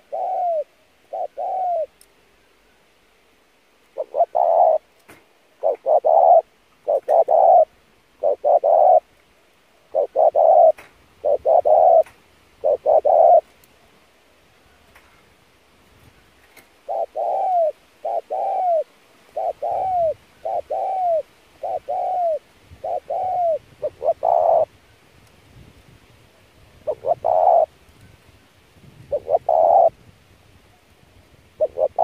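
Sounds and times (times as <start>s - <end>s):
dove cooing: 0.0s - 2.0s, 3.9s - 4.9s, 5.6s - 9.1s, 9.8s - 13.5s, 16.8s - 24.8s, 26.8s - 27.7s, 29.0s - 30.0s, 31.6s - 32.0s.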